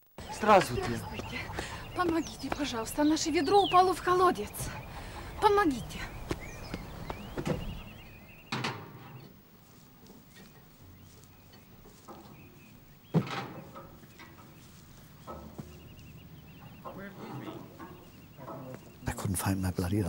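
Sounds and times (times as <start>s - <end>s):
bird calls: 0.2s - 20.0s.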